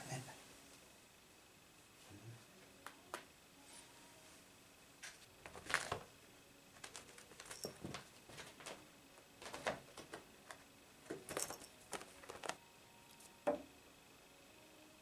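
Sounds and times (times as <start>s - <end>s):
cat paws tapping and scuffing: 6.8s - 8.8s, 9.4s - 12.6s
sharp knock: 13.5s - 13.7s.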